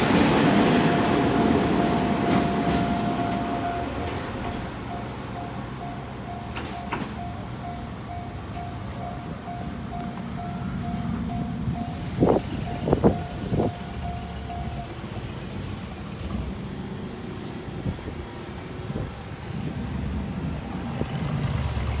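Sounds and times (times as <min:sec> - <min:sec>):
level crossing alarm dinging: 0:00.0 - 0:15.1
diesel railcar running: 0:00.0 - 0:22.0
motorbike engines: 0:00.0 - 0:22.0.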